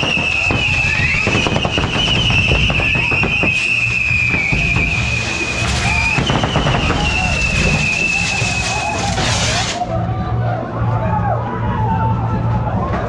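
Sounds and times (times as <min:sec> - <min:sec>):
fireworks crackling pops: 0:00.0 - 0:09.9
high-pitched fireworks whistle: 0:00.0 - 0:09.9
continuous low rumble: 0:00.0 - 0:13.0.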